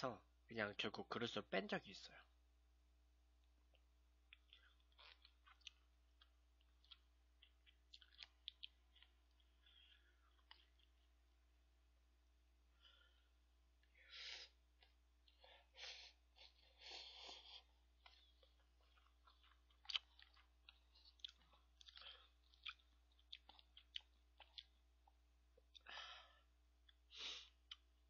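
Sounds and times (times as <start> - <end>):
slurping and chewing noodles: 3.7 - 11.2, 13.8 - 26.0.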